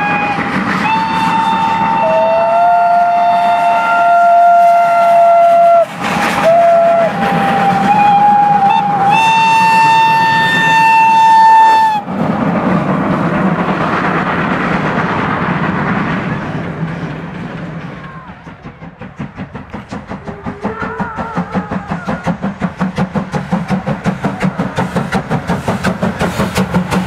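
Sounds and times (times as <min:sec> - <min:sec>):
steam locomotive whistles: 0:00.0 - 0:12.3
steam locomotives rumbling: 0:00.0 - 0:27.0.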